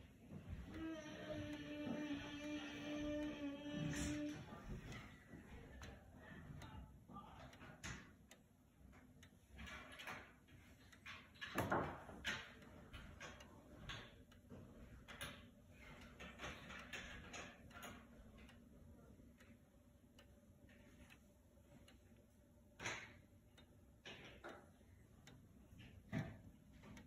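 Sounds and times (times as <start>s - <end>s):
wall clock ticking: 0.0s - 27.0s.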